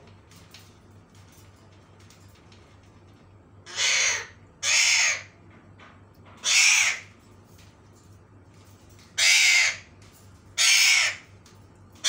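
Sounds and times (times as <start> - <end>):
parakeets screeching: 3.6 - 5.3, 6.4 - 7.2, 9.2 - 11.3.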